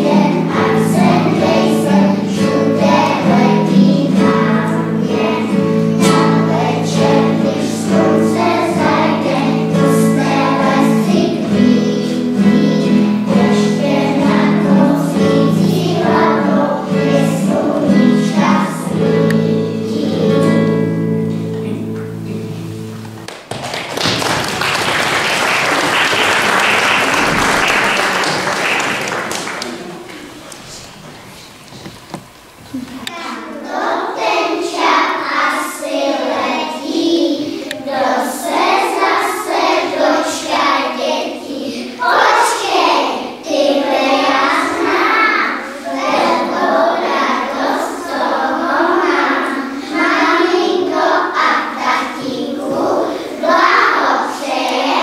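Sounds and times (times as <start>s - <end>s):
children singing: 0.0s - 21.9s, 32.7s - 55.0s
instrumental accompaniment: 0.0s - 23.5s
audience applauding: 23.2s - 30.6s.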